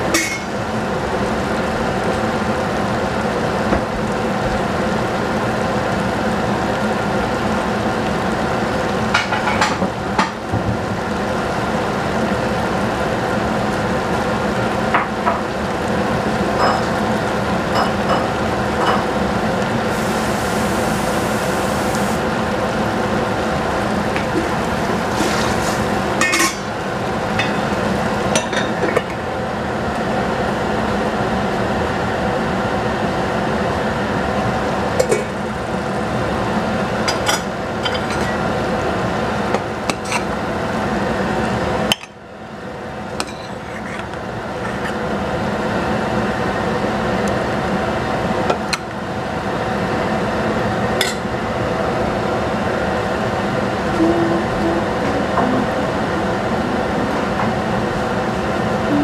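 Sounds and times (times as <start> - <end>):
steady hiss and hum of cooking: 0.0 - 59.0
utensils clinking against pot: 0.1 - 0.5, 26.2 - 26.7, 43.2 - 45.0.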